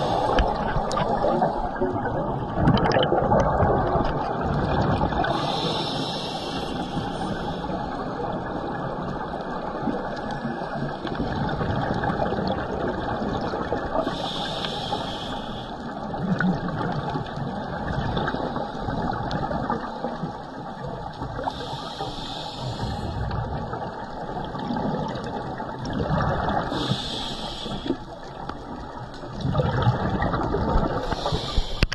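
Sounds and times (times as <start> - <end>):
regulator breathing underwater: 0.0 - 1.8, 5.2 - 8.0, 14.0 - 15.9, 21.4 - 23.6, 26.4 - 28.2, 30.8 - 31.9
bubbling: 0.0 - 31.9
muffled rush of water: 0.0 - 31.9.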